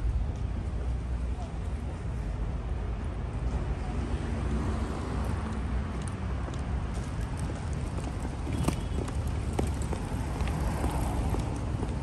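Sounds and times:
traffic rumble: 0.0 - 12.0
footsteps clicking on pavement: 5.2 - 12.0.

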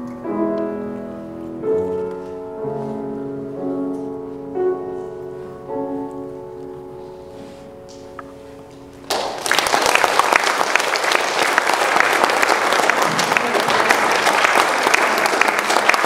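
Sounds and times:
piano chord: 0.0 - 9.6
audience applause: 9.0 - 16.0.

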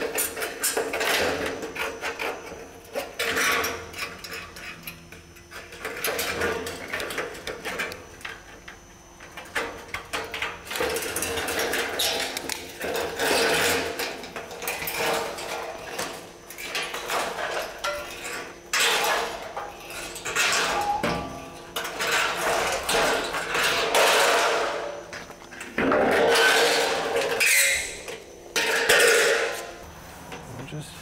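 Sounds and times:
sheet metal clattering and rattling: 10.1 - 25.0, 25.7 - 29.8.

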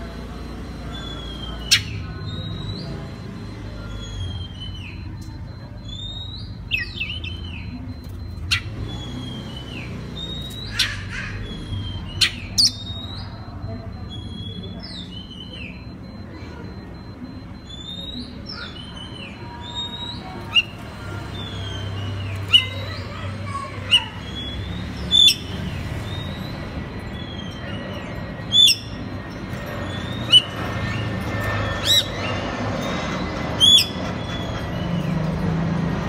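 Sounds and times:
sharp bird chips: 5.8 - 13.5, 17.6 - 35.6.

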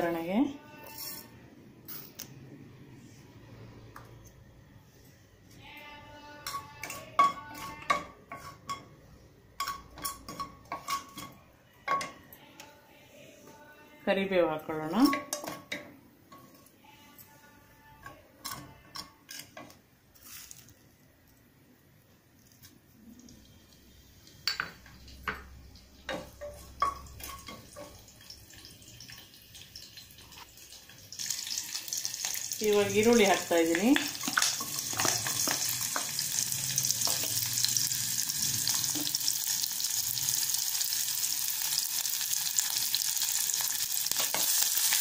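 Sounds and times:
utensils and dishes clinking: 9.6 - 12.3, 24.2 - 40.1, 44.1 - 45.0.

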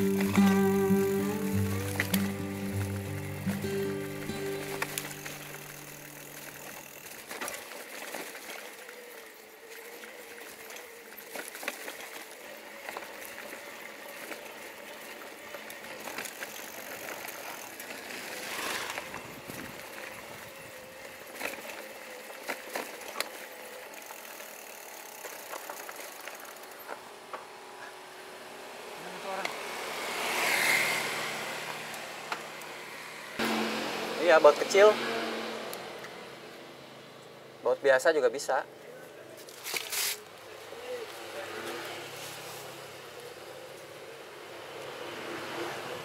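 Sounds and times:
e-bike mechanical clicking and rattling: 0.0 - 27.5.

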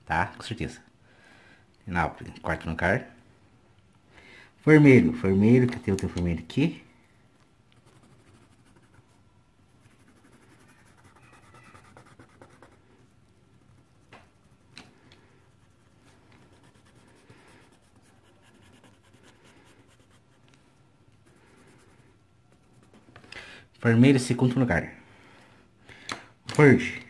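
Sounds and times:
pencil scratching on paper: 7.8 - 9.1, 9.8 - 20.4, 21.2 - 23.2.

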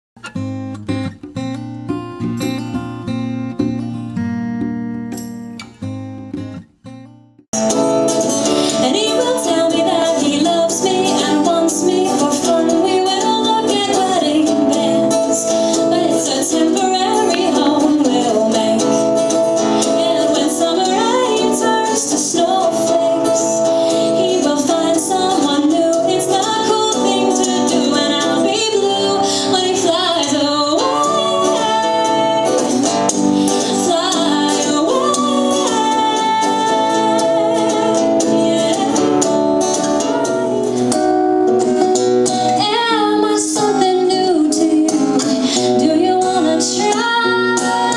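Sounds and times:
acoustic guitar: 0.2 - 47.9
woman singing: 7.6 - 41.0, 42.3 - 47.9.

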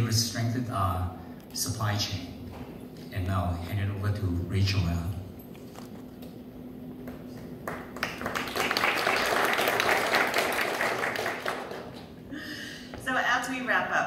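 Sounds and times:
audience applause: 7.0 - 12.2.

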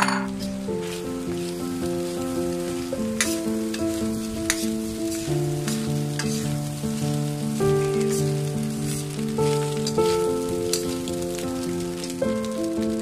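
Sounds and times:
melody of held notes: 0.0 - 13.0
rice sizzling in a wok: 0.0 - 13.0
metal spatula scraping and clinking: 3.2 - 6.6, 7.8 - 11.0.

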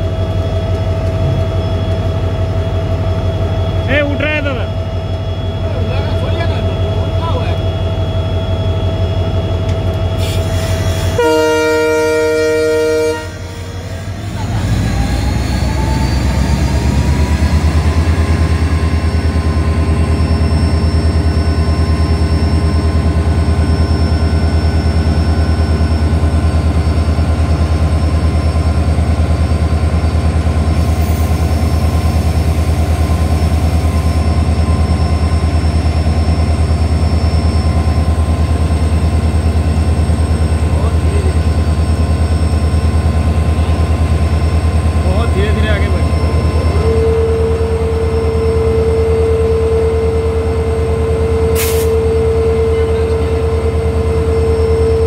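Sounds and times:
locomotive horn: 11.0 - 13.9, 46.8 - 50.2, 51.0 - 54.5.

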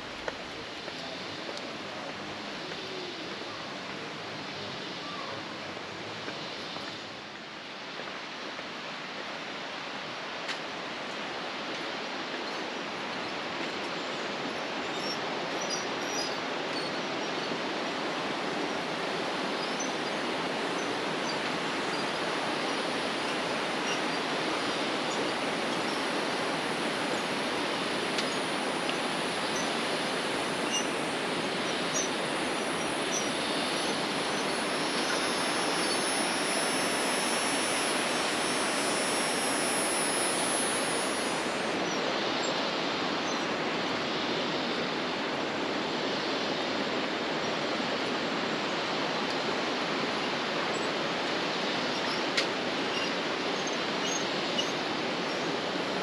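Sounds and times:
flowing water: 16.4 - 56.0
high thin buzz: 23.1 - 41.9.

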